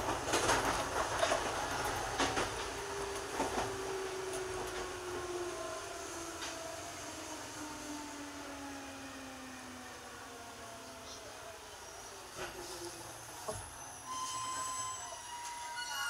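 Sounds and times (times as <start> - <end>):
train wheels clacking over rail joints: 0.0 - 2.8
train running noise: 0.0 - 6.7.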